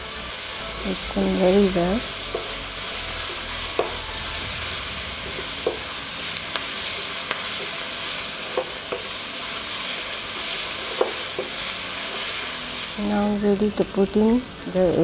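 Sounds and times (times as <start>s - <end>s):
food sizzling in a pan: 0.0s - 15.0s
spatula knocking and scraping pan: 1.7s - 4.3s, 5.2s - 7.8s, 8.5s - 9.2s, 10.7s - 12.3s.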